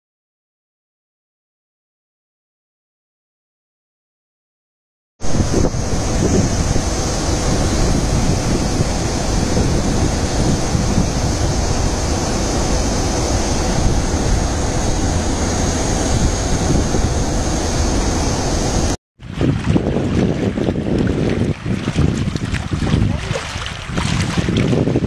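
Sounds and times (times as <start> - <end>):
water rushing over spillway: 5.2 - 25.0
wind buffeting microphone: 5.2 - 25.0.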